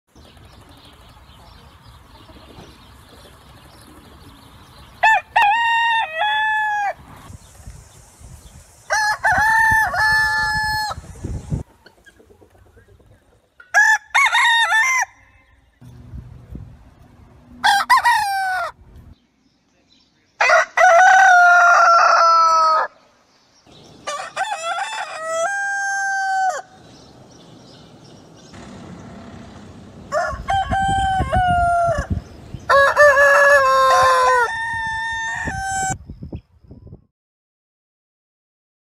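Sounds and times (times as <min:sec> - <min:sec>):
roosters crowing: 0:04.9 - 0:07.3, 0:08.8 - 0:11.6, 0:13.7 - 0:15.8, 0:17.4 - 0:19.0, 0:20.4 - 0:23.1, 0:23.7 - 0:27.1, 0:28.5 - 0:36.0.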